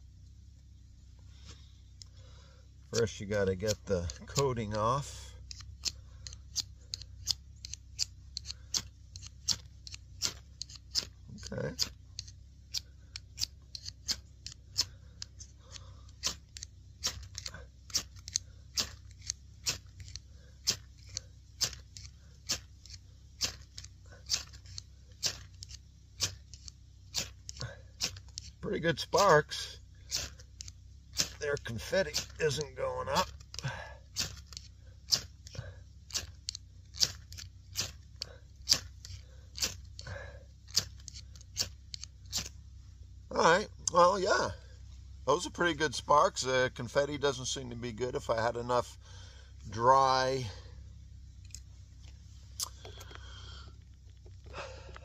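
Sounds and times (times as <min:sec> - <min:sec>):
striker scraping fire steel: 0:02.9 - 0:42.6.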